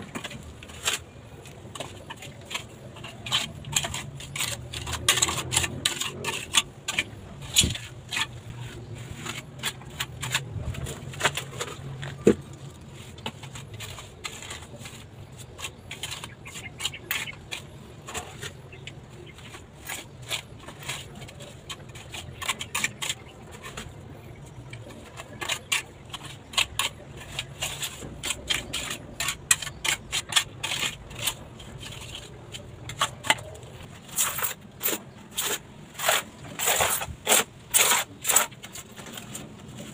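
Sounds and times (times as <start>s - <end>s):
trowel scraping mortar: 0.0s - 39.9s.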